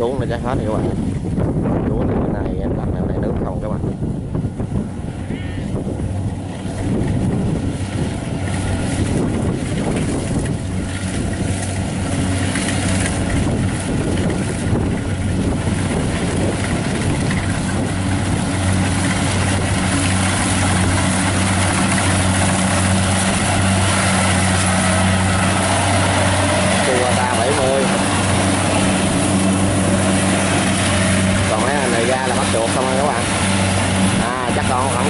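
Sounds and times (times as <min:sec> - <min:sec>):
diesel engine hum: 0:00.0 - 0:35.0
cutter and thresher rattling: 0:05.7 - 0:35.0.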